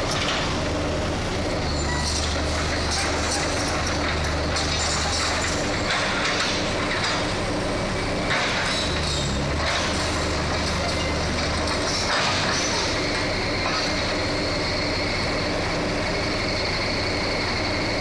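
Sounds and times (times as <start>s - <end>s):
excavator diesel engine running: 0.0s - 18.0s
excavator tracks: 0.0s - 18.0s.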